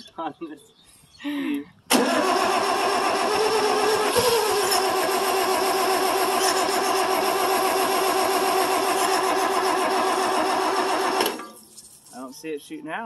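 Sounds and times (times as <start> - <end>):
tractor engine cranking: 1.9 - 12.1.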